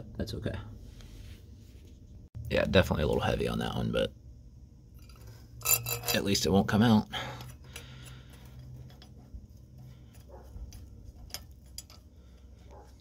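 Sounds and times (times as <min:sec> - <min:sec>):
low steady hum: 0:00.0 - 0:13.0
light clicks of tools handled: 0:10.7 - 0:12.5.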